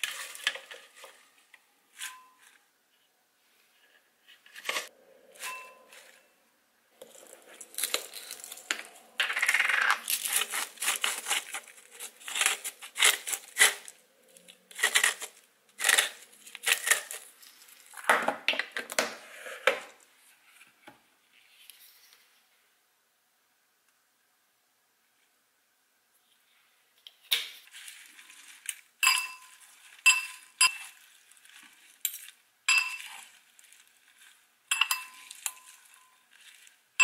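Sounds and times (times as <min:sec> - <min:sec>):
salt mill grinding: 0:07.0 - 0:13.9, 0:28.0 - 0:36.8.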